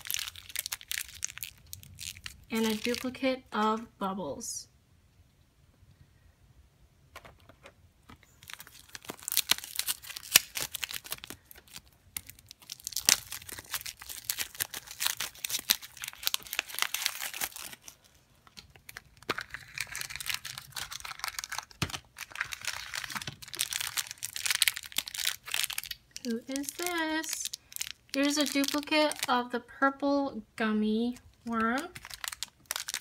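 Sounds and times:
plastic packaging crinkling and tearing: 0:00.0 - 0:03.2, 0:08.1 - 0:29.5, 0:31.5 - 0:33.0.

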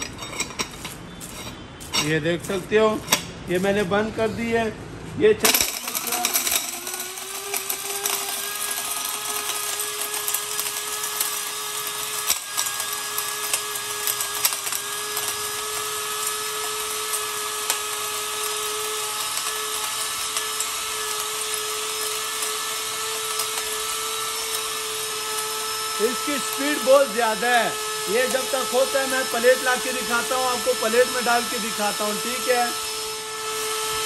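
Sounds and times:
stone pieces rattling: 0:05.4 - 0:10.8
spice grinder motor whining: 0:05.5 - 0:34.0.

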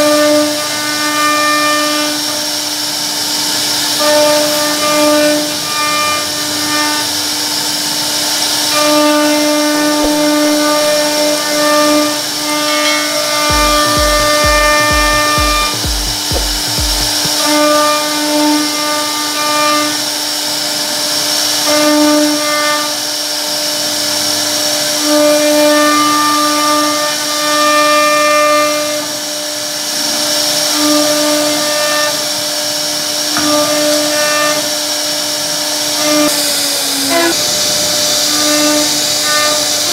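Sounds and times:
router spindle high-pitched whine: 0:31.4 - 0:39.9.

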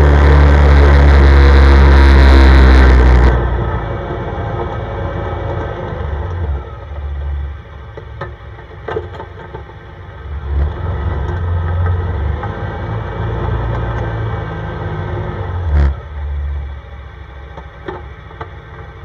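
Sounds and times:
atv engine running: 0:00.0 - 0:14.8.

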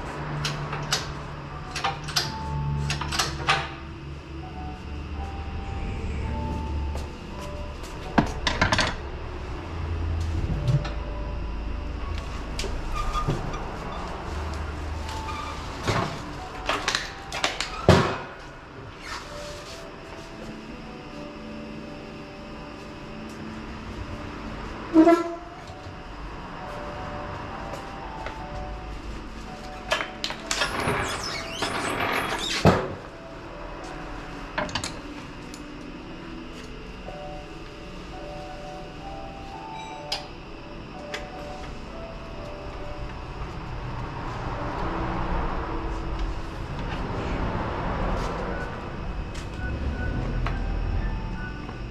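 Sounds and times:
steady low hum: 0:00.0 - 0:17.4.

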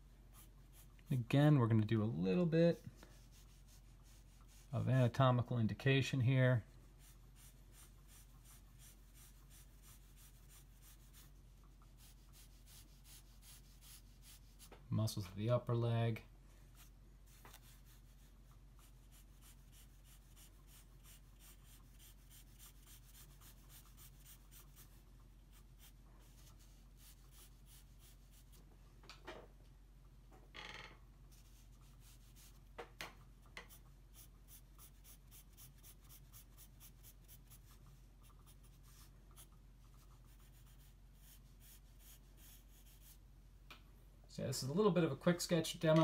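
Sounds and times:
pencil scratching on paper: 0:00.3 - 0:01.0, 0:07.0 - 0:14.7, 0:16.8 - 0:28.6, 0:33.6 - 0:43.2.

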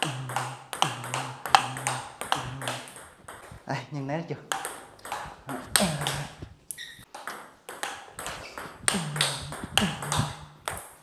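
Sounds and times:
ping-pong ball clicks: 0:00.0 - 0:03.6, 0:04.5 - 0:11.0.

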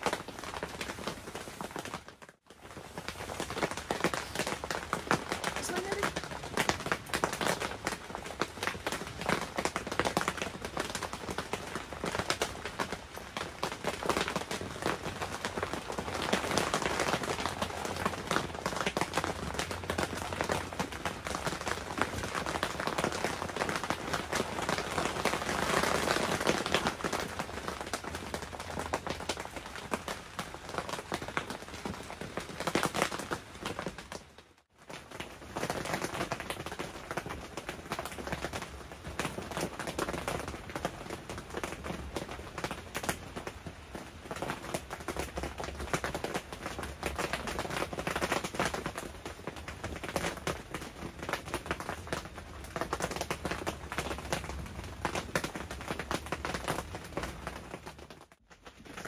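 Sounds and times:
rain on a tent: 0:00.0 - 0:59.0.

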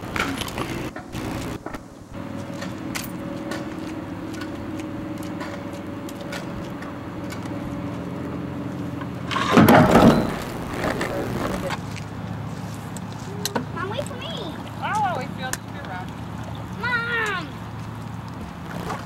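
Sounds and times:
loud burst of noise: 0:00.0 - 0:01.8, 0:09.7 - 0:11.7
outboard motor running: 0:00.0 - 0:19.0.

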